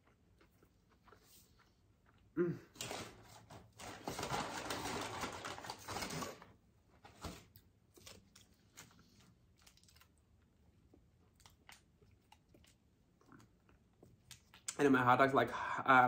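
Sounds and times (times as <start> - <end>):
soft chewing: 0.0 - 2.8, 7.4 - 14.8
paper bag rustling: 2.8 - 7.5
paper wrappers crinkling: 2.8 - 10.1.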